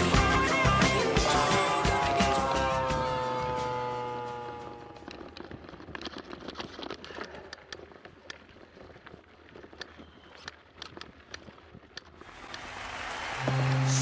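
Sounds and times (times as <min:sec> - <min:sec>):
background music: 0:00.0 - 0:05.0, 0:13.2 - 0:14.0
bike tyres on dirt trail: 0:04.1 - 0:13.6
bike clicking and rattling over bumps: 0:05.0 - 0:12.2.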